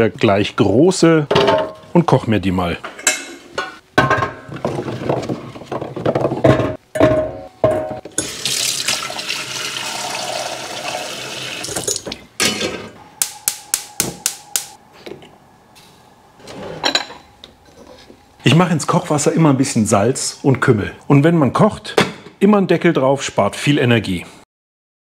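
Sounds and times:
tap water running into pot: 0:08.1 - 0:12.1.

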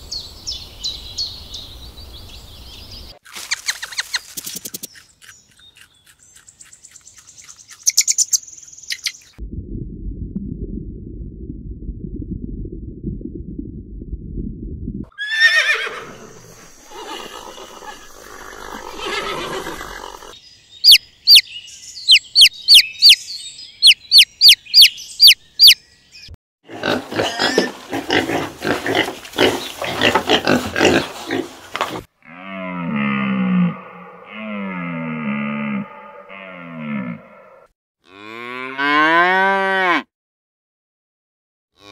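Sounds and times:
low rumble: 0:09.4 - 0:15.1
falling animal cry: 0:15.1 - 0:21.0
chicks peeping: 0:20.8 - 0:21.4, 0:22.0 - 0:25.8
warthog grunting: 0:26.7 - 0:31.5.

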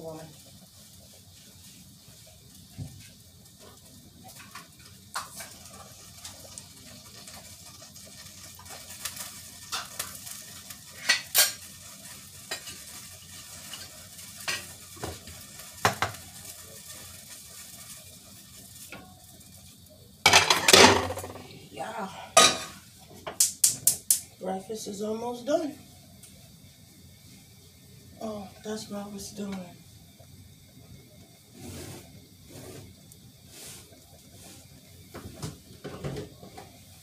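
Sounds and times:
food sizzling in a pan: 0:00.0 - 0:37.0
utensil scraping a pan: 0:31.6 - 0:32.9.

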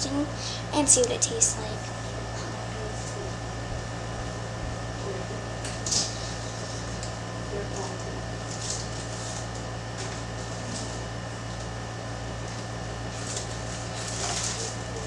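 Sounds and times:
air conditioners and fans humming: 0:00.0 - 0:15.0
packaging rustling: 0:13.2 - 0:14.8.

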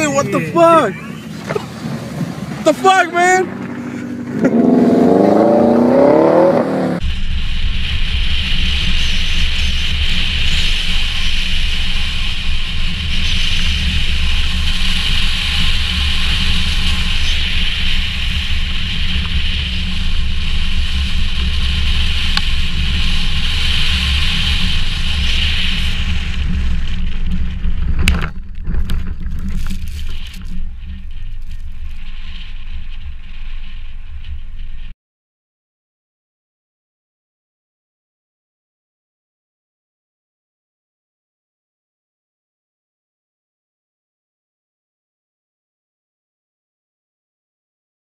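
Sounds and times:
low engine rumble: 0:00.0 - 0:34.9
wind and road noise: 0:00.0 - 0:35.0.

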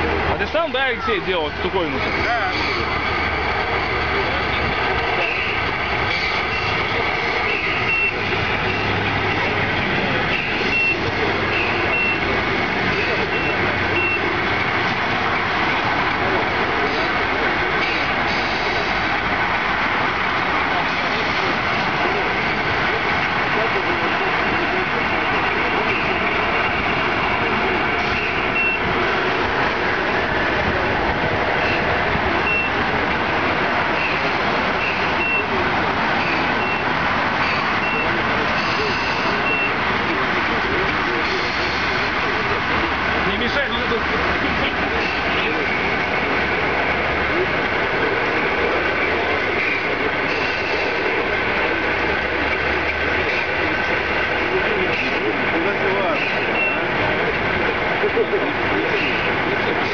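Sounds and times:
simulated truck engine sound: 0:00.0 - 0:59.9
reverse warning beeps: 0:00.6 - 0:09.0, 0:10.2 - 0:14.4, 0:28.0 - 0:28.9, 0:31.6 - 0:32.8, 0:34.8 - 0:35.6, 0:36.2 - 0:39.8, 0:56.1 - 0:56.9.

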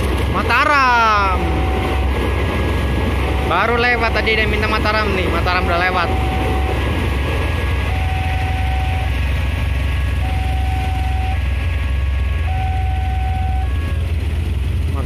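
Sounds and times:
level crossing warning alarm: 0:00.7 - 0:09.5, 0:10.1 - 0:14.1
idling motorcycle and car engines: 0:12.6 - 0:15.0.

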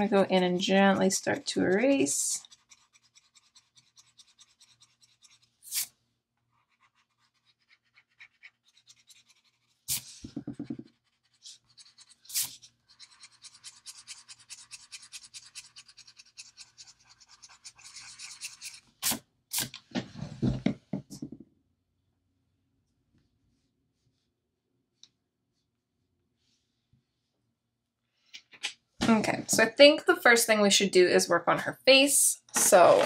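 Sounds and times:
eraser rubbing on paper: 0:00.0 - 0:05.9, 0:06.6 - 0:19.7
hand bumping and brushing paper: 0:09.9 - 0:11.0.

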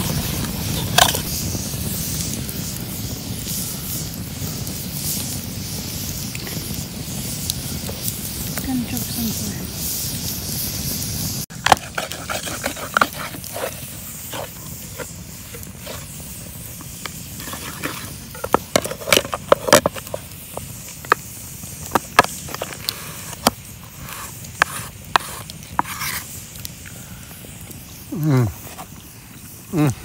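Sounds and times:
campfire crackling and popping: 0:00.0 - 0:30.0
spatula stirring food in frying pan: 0:10.5 - 0:26.9.

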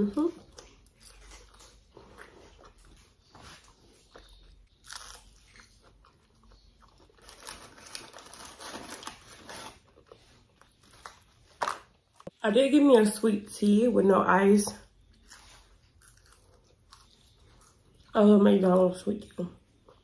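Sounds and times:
person chewing crunchy food: 0:00.2 - 0:12.4, 0:14.9 - 0:18.2.

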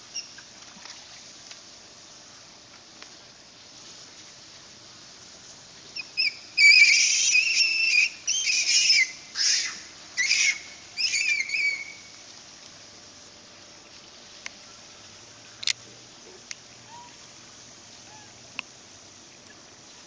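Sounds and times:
monkey squealing: 0:06.2 - 0:12.0.

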